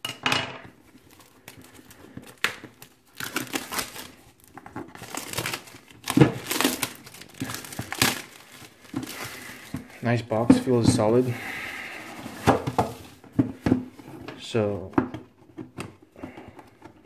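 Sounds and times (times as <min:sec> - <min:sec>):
plastic shrink-wrap crinkling: 0:00.8 - 0:13.2.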